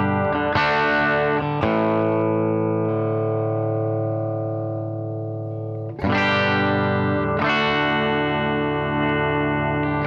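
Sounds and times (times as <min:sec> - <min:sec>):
electric guitar chords: 0:00.0 - 0:10.0.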